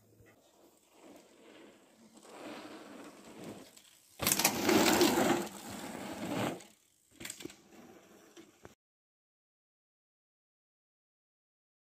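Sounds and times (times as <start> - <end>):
bike tyre and frame noise: 0.0 - 8.8.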